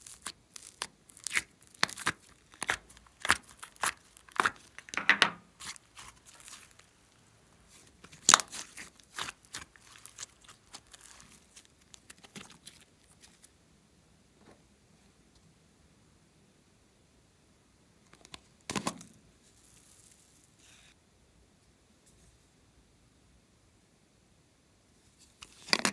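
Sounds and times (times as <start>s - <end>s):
slime sticky crackles and pops: 0.0s - 5.0s, 5.6s - 6.9s, 8.0s - 13.2s.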